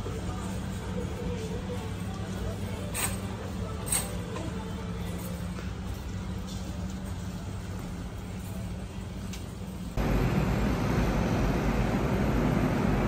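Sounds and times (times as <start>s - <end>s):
supermarket low hum: 0.0s - 13.0s
city traffic rumble: 6.7s - 13.0s.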